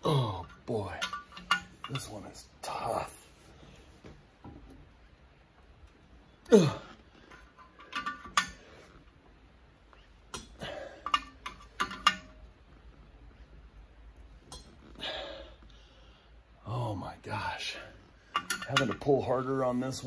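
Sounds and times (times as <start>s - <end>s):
metal clinking and clicking: 0.4s - 2.4s, 7.2s - 8.9s, 10.2s - 12.6s, 14.4s - 14.9s, 18.2s - 19.2s.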